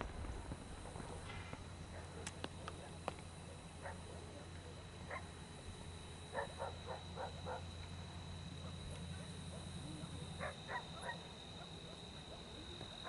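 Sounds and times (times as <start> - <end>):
distant dog barking: 1.9 - 4.4, 5.0 - 5.4, 6.3 - 7.8, 9.5 - 13.0.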